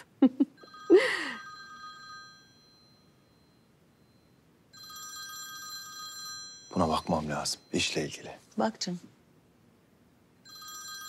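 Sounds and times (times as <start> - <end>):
phone ringtone high tones: 0.6 - 6.9, 10.4 - 11.0.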